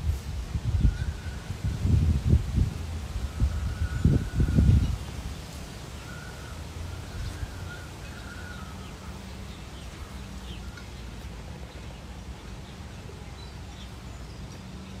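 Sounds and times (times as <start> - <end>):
faint bird calls: 5.8 - 11.1.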